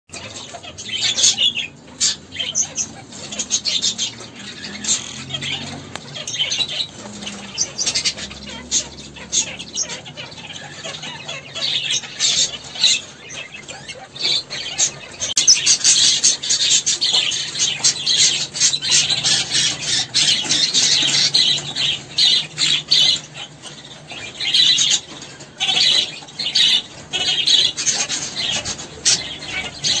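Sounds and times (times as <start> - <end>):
parrots chirping and twittering: 0.1 - 30.0.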